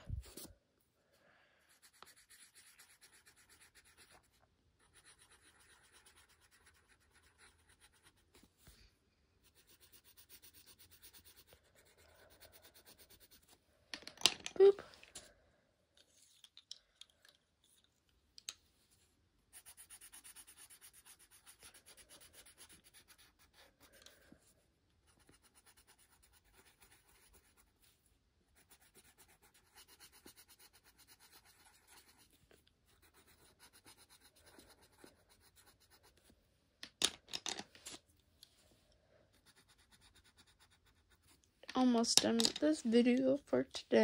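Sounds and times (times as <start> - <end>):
pencil scratching on paper: 1.7 - 8.5, 9.4 - 13.6, 19.5 - 36.3, 39.3 - 41.4.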